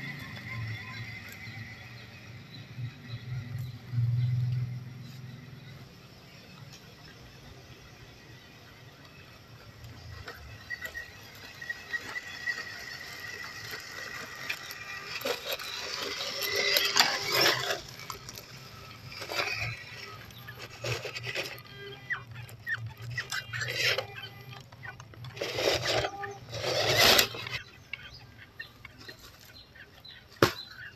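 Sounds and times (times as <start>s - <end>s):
toy car motor and gears whining: 0.0s - 30.9s
tyres crunching over leaves and gravel: 8.1s - 28.2s.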